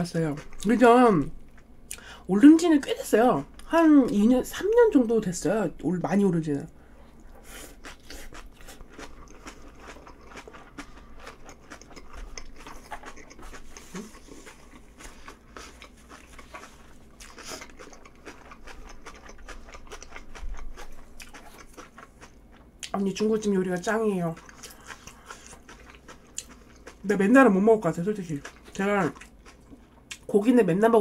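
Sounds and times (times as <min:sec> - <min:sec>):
person chewing food: 0:00.3 - 0:00.8, 0:06.8 - 0:27.3, 0:28.1 - 0:30.3.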